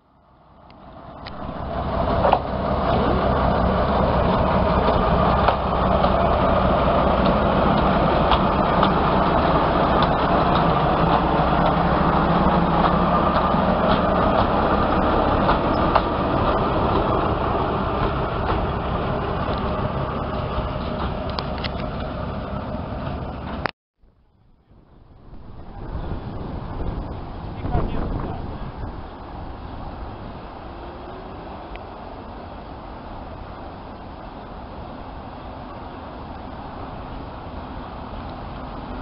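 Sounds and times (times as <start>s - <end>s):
diesel locomotive engine running: 0.2s - 23.7s, 24.9s - 39.0s
clicks of wheels on rails: 4.2s - 17.2s, 18.0s - 18.8s.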